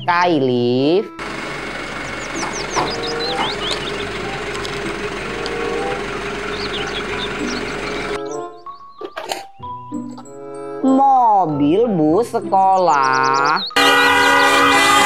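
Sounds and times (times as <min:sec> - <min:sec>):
vehicle engine running: 0:01.2 - 0:08.2.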